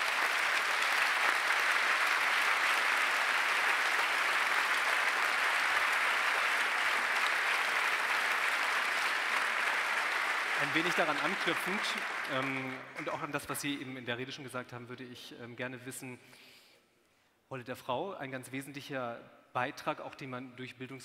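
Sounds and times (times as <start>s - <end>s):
audience applause: 0.0s - 13.3s.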